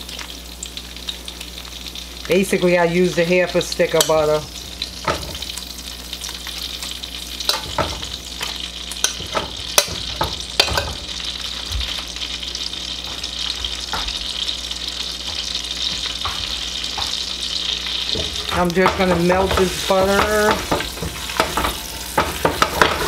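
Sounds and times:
butter sizzling in oil: 0.0 - 23.0.

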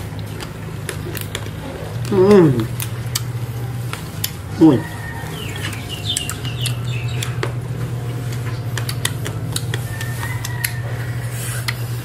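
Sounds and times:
low hum: 0.0 - 12.0
chewing mouth clicks: 0.2 - 4.4, 8.1 - 12.0
small birds chirping: 4.6 - 11.0.

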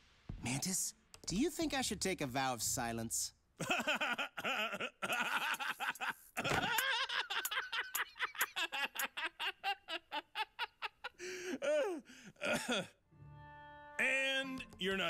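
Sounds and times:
cartoon character laughing: 3.6 - 11.2.

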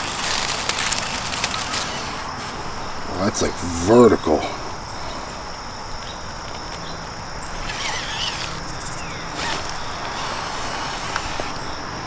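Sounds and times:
insects droning: 0.0 - 12.0
tyres scraping on stone: 6.4 - 12.0
electric motor hum: 7.4 - 12.0.

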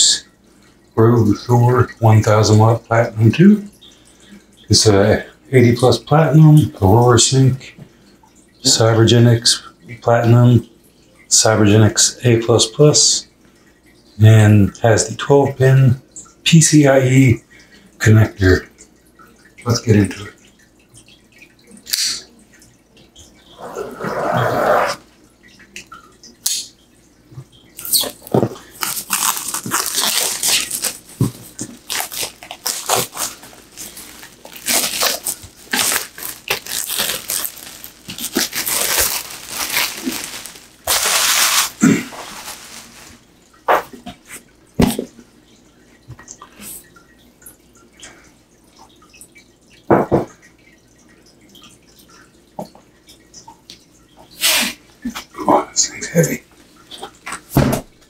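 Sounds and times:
plastic wrap crinkling: 27.8 - 43.3
knife slitting plastic wrap: 28.8 - 31.0, 31.8 - 43.2.

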